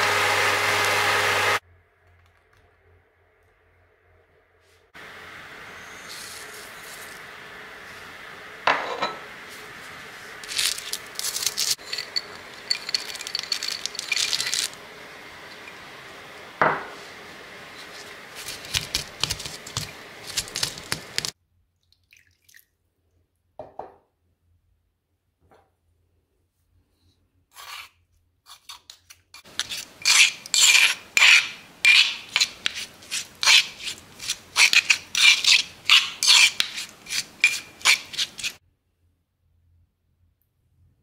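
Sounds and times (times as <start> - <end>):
peanuts crunching in mortar: 10.4 - 14.8
pestle scraping: 10.4 - 14.8, 17.8 - 21.3, 28.5 - 38.6.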